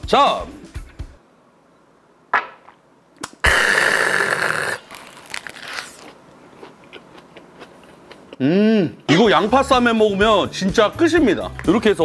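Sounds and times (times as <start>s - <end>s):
person chewing crunchy food: 4.3s - 8.4s.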